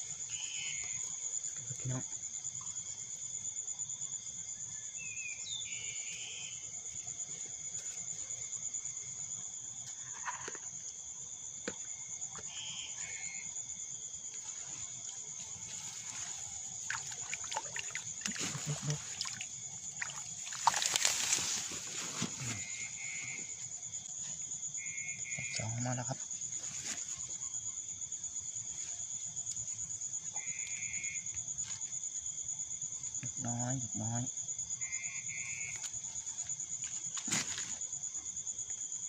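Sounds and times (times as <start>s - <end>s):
crickets chirring: 0.0s - 39.0s
water splashing and sloshing: 14.4s - 22.8s
rustling: 14.4s - 23.6s.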